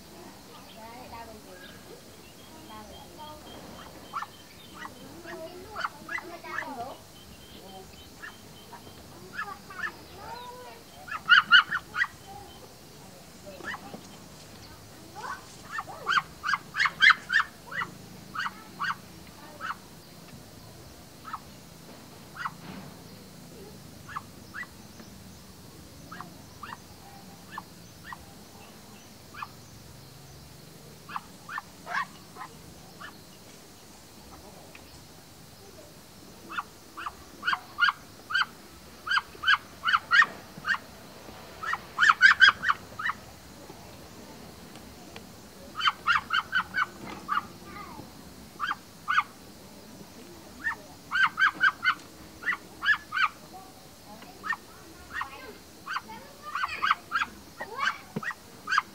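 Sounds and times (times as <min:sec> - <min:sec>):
ducks quacking: 0:02.6 - 0:12.5, 0:15.2 - 0:19.9, 0:22.3 - 0:22.6, 0:29.3 - 0:29.6, 0:31.1 - 0:33.2, 0:36.5 - 0:40.9, 0:41.6 - 0:43.4, 0:45.7 - 0:47.6, 0:50.6 - 0:53.4.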